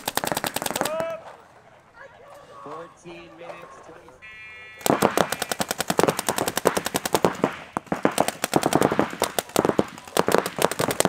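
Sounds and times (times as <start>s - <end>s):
paintball markers firing rapidly: 0.0s - 1.2s, 4.8s - 11.0s.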